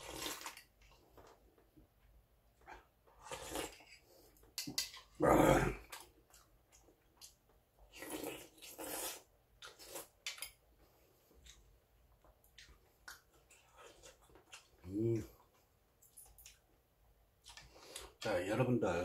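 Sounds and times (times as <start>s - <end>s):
man slurping soup: 3.2s - 4.0s, 8.0s - 10.1s
chewing: 5.8s - 16.7s, 17.4s - 18.2s.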